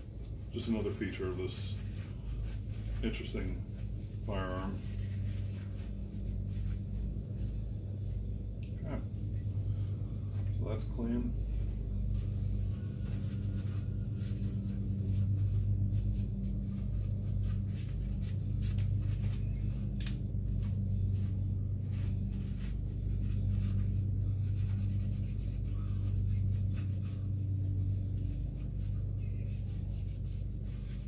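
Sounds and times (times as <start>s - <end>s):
steady low hum: 0.0s - 31.0s
paper towel scrunching on metal: 0.1s - 8.2s.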